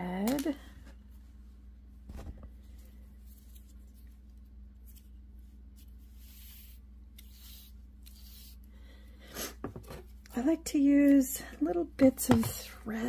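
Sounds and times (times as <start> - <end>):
steady low hum: 0.0 - 13.0
soft rustling of thread and paper: 2.5 - 8.7.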